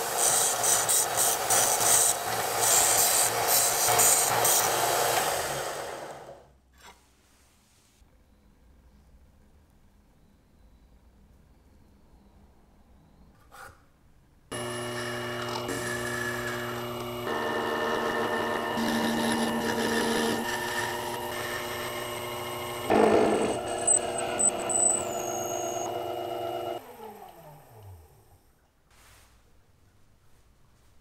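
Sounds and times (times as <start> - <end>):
lathe cutting noise: 0.0 - 6.3, 14.5 - 27.3
lathe motor whine: 14.5 - 28.1.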